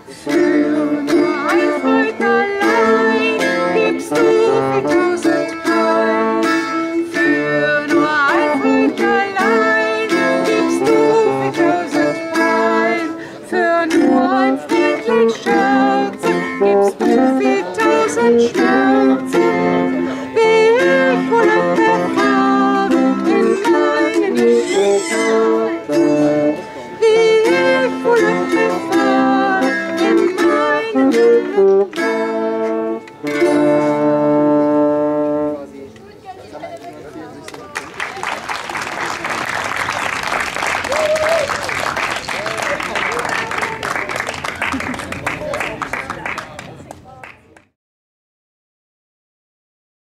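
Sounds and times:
plucked string folk music: 0:00.0 - 0:37.6.

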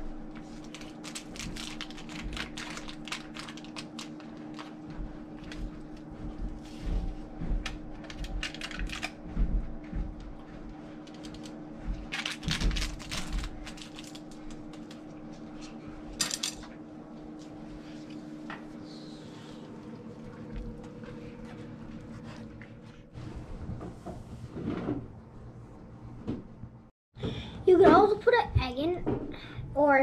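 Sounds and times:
steady hum: 0:00.0 - 0:27.8.

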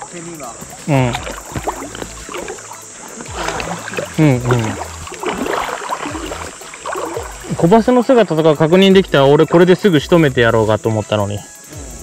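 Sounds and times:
water sloshing: 0:00.0 - 0:09.6.

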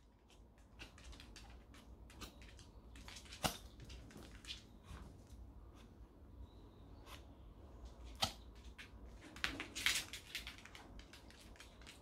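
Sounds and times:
dog claws ticking on floor: 0:00.2 - 0:04.7.

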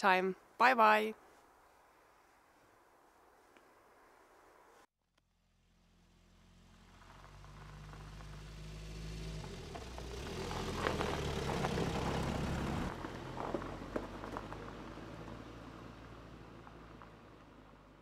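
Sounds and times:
car engine passing: 0:05.4 - 0:18.0
tyres crackling on snow: 0:06.5 - 0:15.6.

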